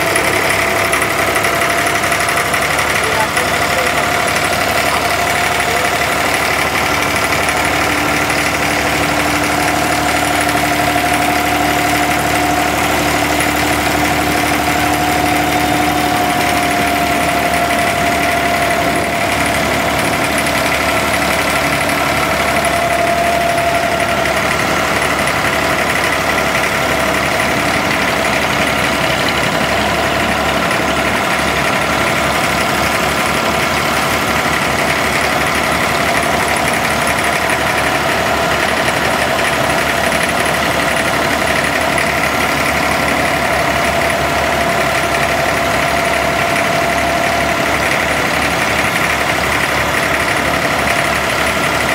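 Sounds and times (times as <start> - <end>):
boat diesel engine droning: 0.0 - 51.9.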